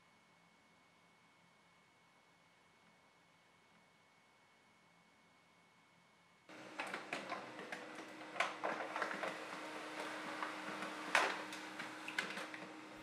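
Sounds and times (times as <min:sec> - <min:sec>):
paper feed clicks: 0:06.5 - 0:13.0
printer motor running: 0:06.5 - 0:13.0.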